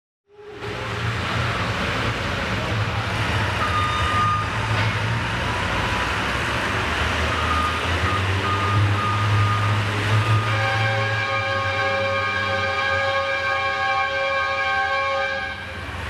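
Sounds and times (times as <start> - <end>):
reversing alarm beeps: 3.5 - 6.1, 7.1 - 10.9.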